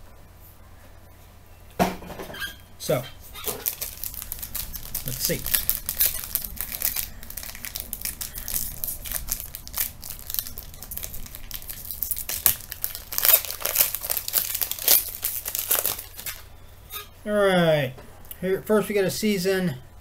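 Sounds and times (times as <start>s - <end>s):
plastic wrapping crinkling and tearing: 2.5s - 16.6s.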